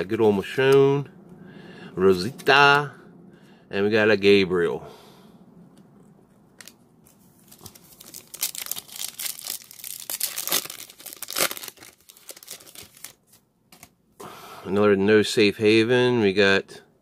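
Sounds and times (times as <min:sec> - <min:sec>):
foil wrapper tearing and crinkling: 0:07.4 - 0:13.9.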